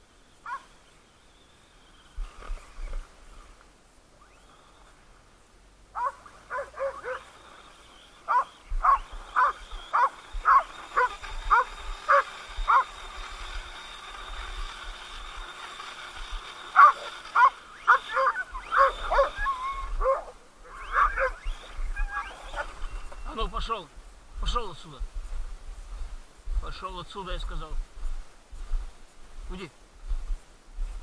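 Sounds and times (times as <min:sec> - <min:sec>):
faint high whine: 0:00.0 - 0:31.0
dogs yapping: 0:00.4 - 0:00.7, 0:05.9 - 0:07.4, 0:08.2 - 0:13.0, 0:16.7 - 0:22.9.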